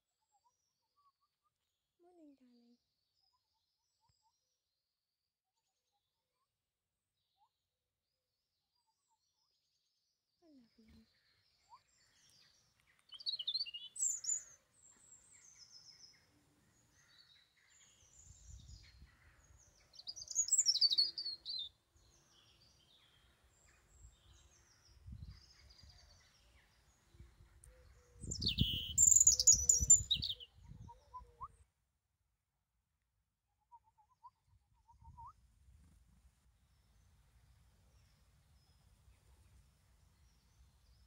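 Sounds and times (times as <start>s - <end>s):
robin singing: 12.0s - 31.6s.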